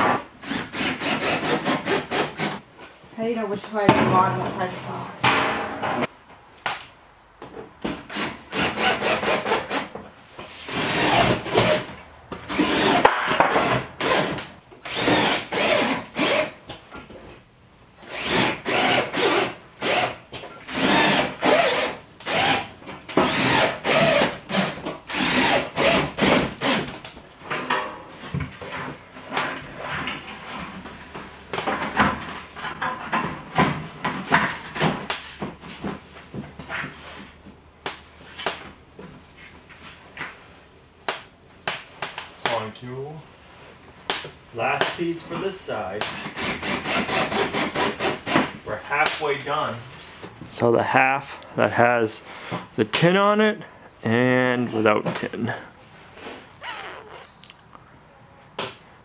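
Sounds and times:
cordless drill driving screws: 0:00.4 - 0:02.6, 0:08.1 - 0:09.9, 0:10.7 - 0:11.9, 0:12.5 - 0:16.6, 0:18.0 - 0:27.0, 0:46.2 - 0:48.5.

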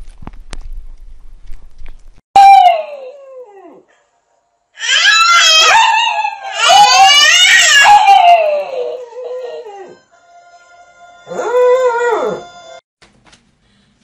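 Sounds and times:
dog howling: 0:04.8 - 0:12.8.

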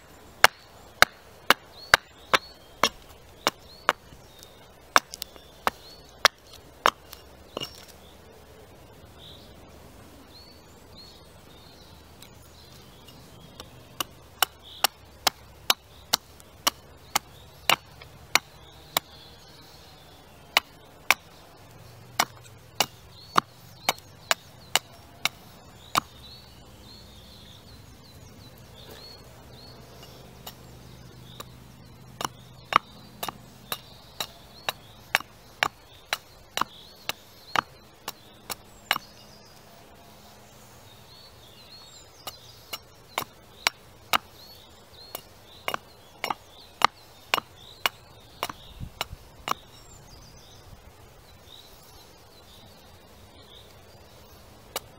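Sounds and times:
axe chopping wood: 0:00.4 - 0:08.0, 0:13.5 - 0:26.4, 0:28.8 - 0:39.3, 0:41.9 - 0:49.8.

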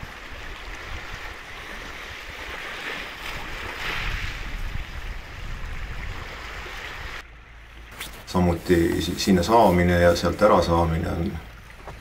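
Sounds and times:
wind rumble: 0:00.0 - 0:08.7.

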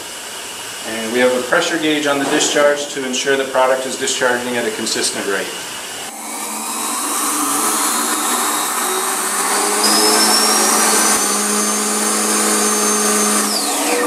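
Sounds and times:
mill machine running with whine: 0:05.7 - 0:14.0.

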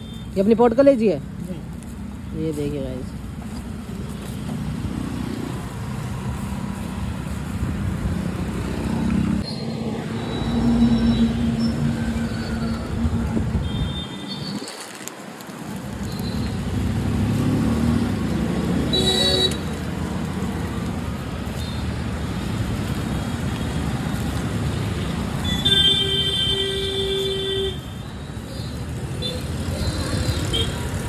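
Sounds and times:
street traffic engines running: 0:00.0 - 0:31.0
vehicle horn: 0:18.9 - 0:19.6, 0:25.4 - 0:27.9.

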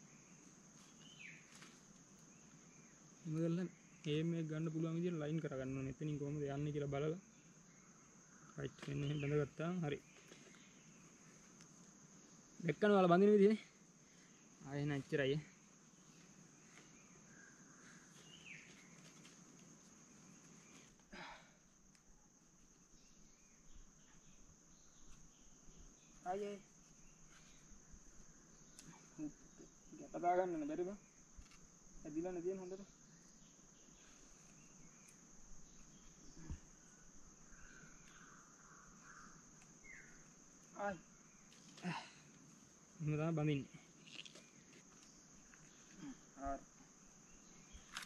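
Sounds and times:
faint bird chirps: 0:00.0 - 0:11.7, 0:13.4 - 0:19.4, 0:20.1 - 0:48.0
high-pitched insect drone: 0:00.0 - 0:48.0.

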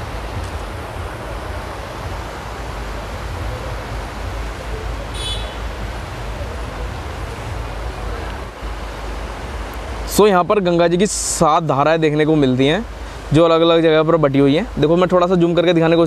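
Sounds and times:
wind rumble on microphone: 0:00.0 - 0:10.1
river rushing: 0:00.0 - 0:16.0.

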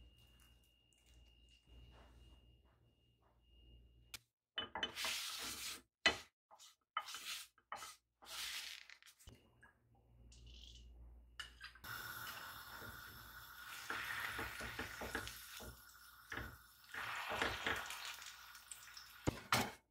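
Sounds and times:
paper towel scraping frying pan: 0:04.8 - 0:08.9
fish sizzling in pan: 0:11.9 - 0:19.3.

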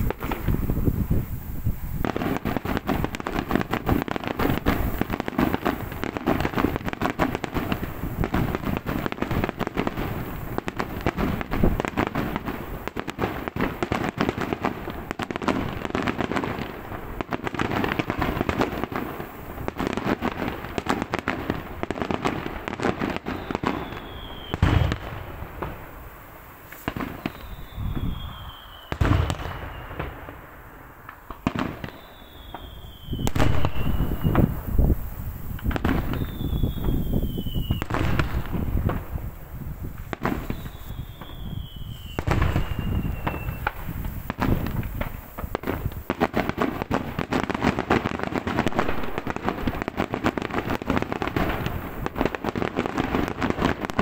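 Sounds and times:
heavy firework bangs: 0:00.0 - 0:54.0
rapid firecracker bangs: 0:00.0 - 0:54.0
firework whistle falling: 0:23.2 - 0:25.8, 0:26.7 - 0:30.3, 0:31.0 - 0:39.2, 0:39.8 - 0:46.2.

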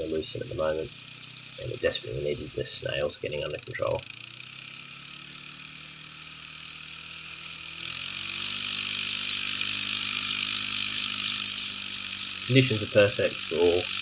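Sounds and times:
quad bike engine running: 0:00.0 - 0:14.0
hiss: 0:08.4 - 0:14.0.

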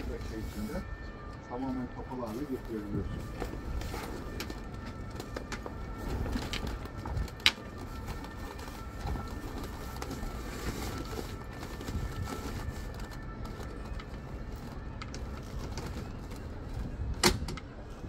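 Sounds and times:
canvas panel being handled: 0:02.2 - 0:17.0.

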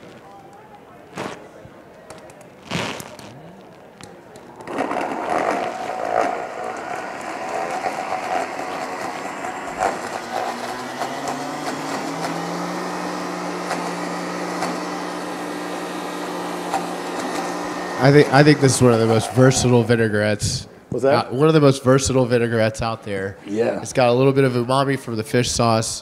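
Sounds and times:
countertop blender whirring: 0:04.5 - 0:20.4.

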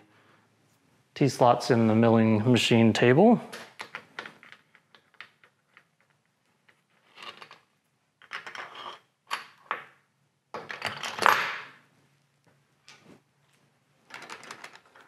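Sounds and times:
metal nuts clicking and scraping: 0:03.8 - 0:09.7
metal parts rattling: 0:14.1 - 0:15.0.

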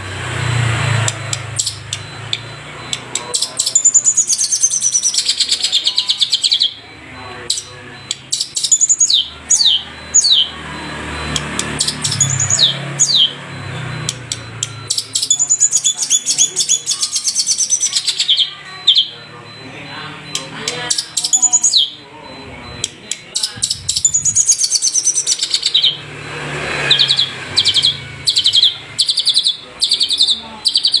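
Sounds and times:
shrike fast chattering song: 0:00.3 - 0:31.0
bird whistling song: 0:26.9 - 0:31.0.

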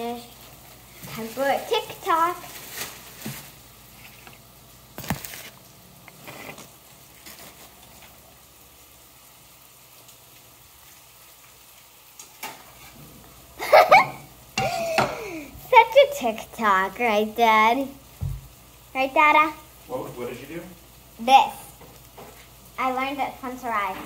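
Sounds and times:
low room hiss: 0:00.0 - 0:24.0.

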